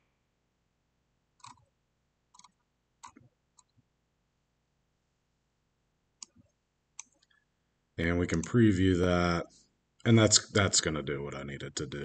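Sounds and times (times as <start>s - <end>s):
computer mouse clicks: 1.4s - 1.6s, 2.3s - 3.8s, 6.2s - 7.4s.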